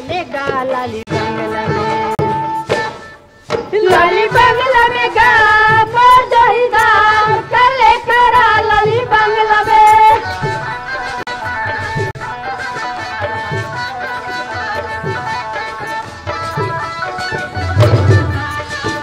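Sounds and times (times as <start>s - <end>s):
high voice singing folk song: 0.0s - 2.6s, 3.6s - 19.0s
instrumental accompaniment: 0.0s - 19.0s.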